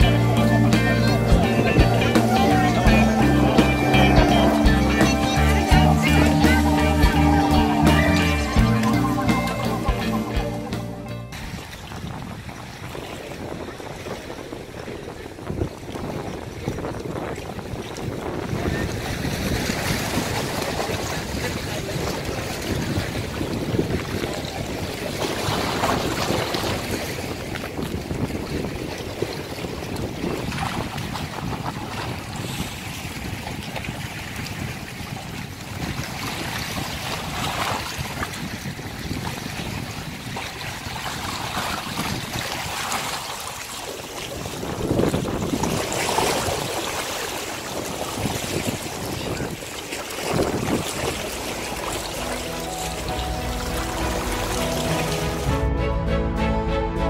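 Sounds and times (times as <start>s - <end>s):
waves lapping against rocks: 11.3s - 55.5s
wind on microphone: 11.3s - 55.6s.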